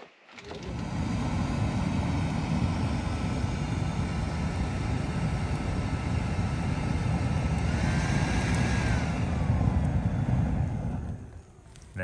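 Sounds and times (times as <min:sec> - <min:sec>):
leaf blower running: 0:00.5 - 0:11.3.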